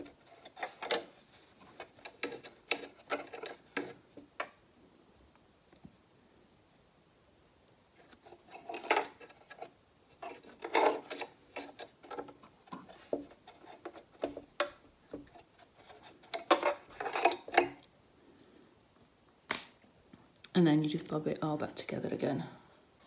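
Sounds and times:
brush scrubbing metal: 0:00.0 - 0:04.2, 0:08.0 - 0:17.8.

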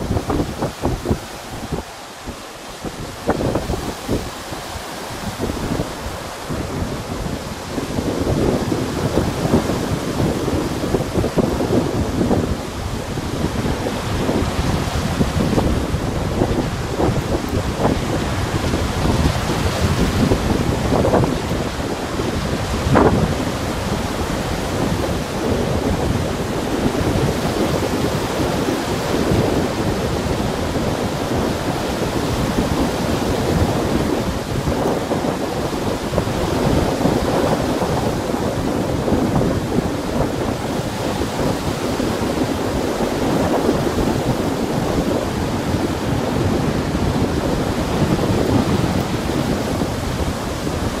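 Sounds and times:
waves breaking on shore: 0:00.0 - 0:51.0
wind rumble on microphone: 0:00.0 - 0:51.0.

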